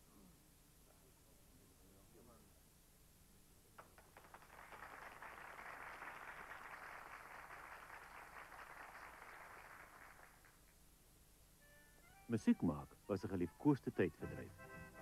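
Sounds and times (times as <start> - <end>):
faint audience applause: 3.8 - 10.8.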